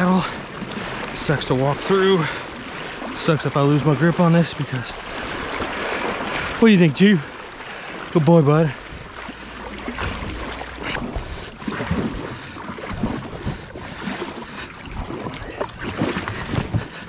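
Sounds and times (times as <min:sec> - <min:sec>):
paddle splashes and drips: 0:00.0 - 0:17.0
wind rumbling on microphone: 0:08.8 - 0:17.0.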